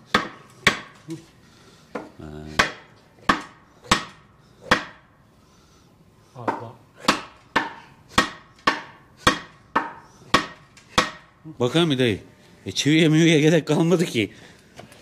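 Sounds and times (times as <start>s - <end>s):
sharp wooden knocks: 0.0s - 1.0s, 1.9s - 5.1s, 6.4s - 11.3s.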